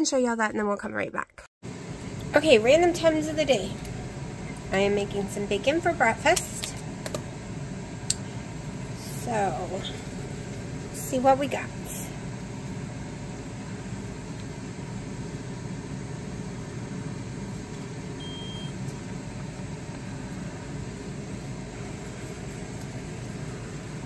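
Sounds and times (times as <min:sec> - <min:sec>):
ventilation hum: 0:01.6 - 0:24.0
short high beep: 0:18.2 - 0:18.7.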